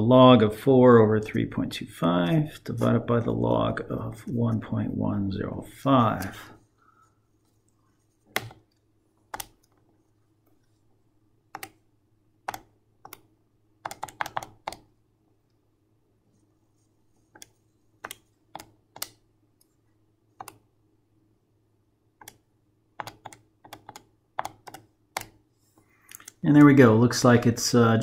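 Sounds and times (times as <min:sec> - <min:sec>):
faint steady hum: 0:00.0 - 0:28.0.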